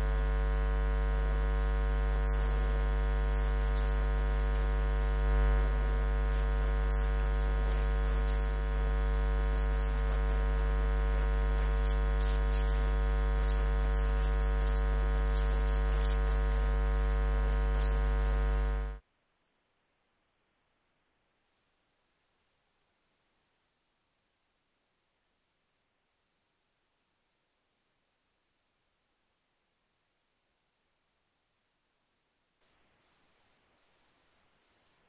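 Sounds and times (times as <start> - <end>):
electrical hum: 0.0 - 19.0.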